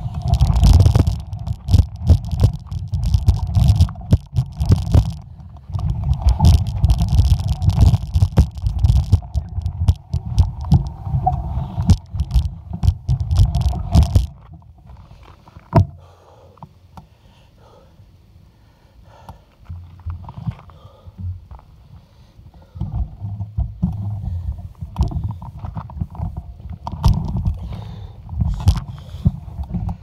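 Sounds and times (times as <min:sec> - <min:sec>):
bike tyres crunching gravel: 0:00.0 - 0:15.7
bike rattling over bumps: 0:00.0 - 0:16.0, 0:22.6 - 0:30.0.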